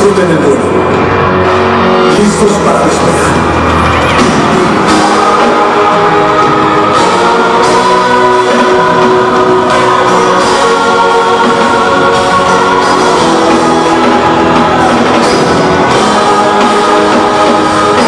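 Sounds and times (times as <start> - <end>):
live band music: 0.0 - 18.0
voices singing: 4.1 - 18.0.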